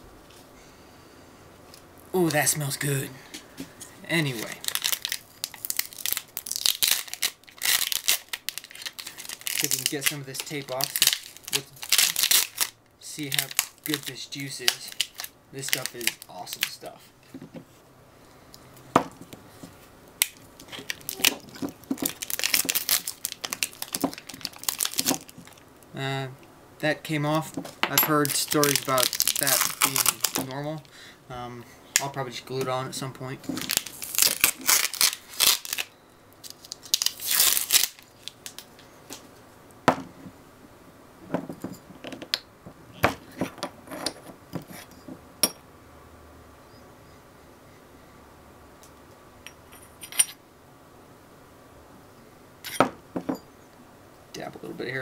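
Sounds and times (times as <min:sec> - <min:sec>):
plastic wrapping crinkling: 0:04.2 - 0:17.0, 0:19.6 - 0:25.9, 0:27.4 - 0:30.9, 0:33.0 - 0:39.3
packing tape peeling and tearing: 0:04.3 - 0:16.9, 0:20.2 - 0:25.6, 0:28.3 - 0:30.6, 0:33.5 - 0:38.7.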